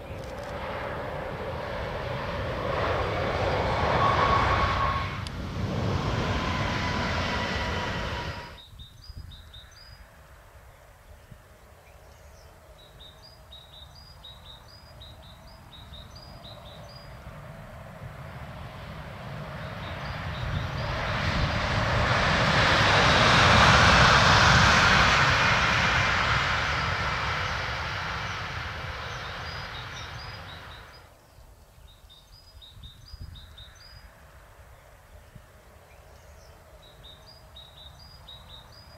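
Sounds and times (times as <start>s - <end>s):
electric locomotive passing: 0.0s - 8.6s, 15.1s - 31.1s
bird chirping: 11.8s - 17.2s, 29.0s - 34.0s, 35.9s - 38.9s.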